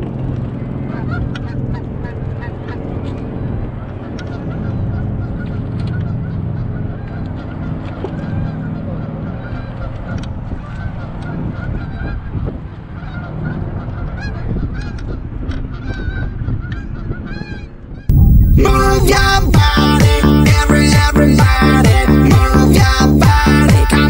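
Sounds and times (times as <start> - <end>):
geese honking: 0.8 - 17.7, 18.6 - 24.0
low rumble: 18.1 - 24.0.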